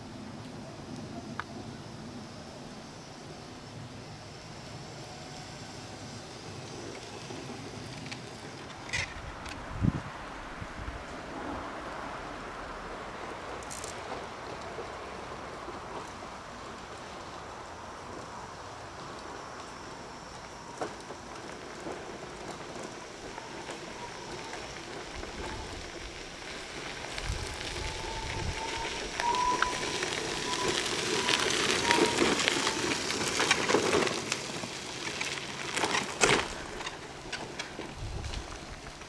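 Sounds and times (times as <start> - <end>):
tyres crunching on gravel: 13.5 - 39.0.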